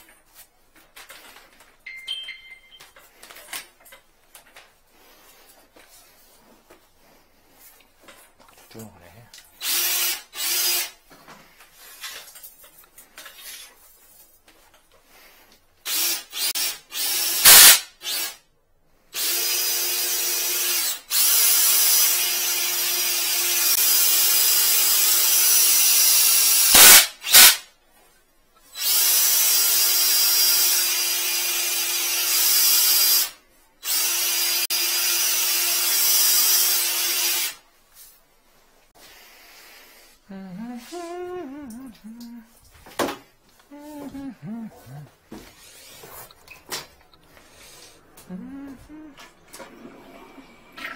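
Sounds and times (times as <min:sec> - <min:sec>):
cordless drill spinning: 0:09.5 - 0:11.0, 0:15.8 - 0:18.4, 0:19.2 - 0:27.6, 0:28.7 - 0:37.6.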